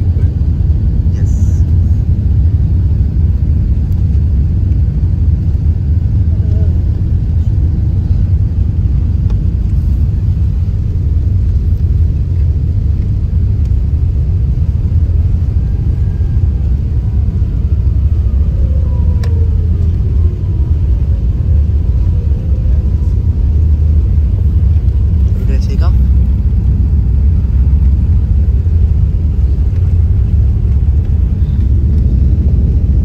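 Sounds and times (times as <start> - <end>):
jet engines low rumble: 0.0 - 33.0
faint falling whines: 15.0 - 25.2.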